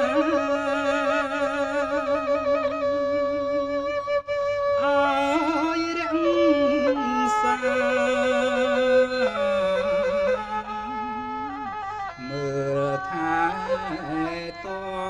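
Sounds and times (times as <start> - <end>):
man chanting verse: 12.2 - 15.0.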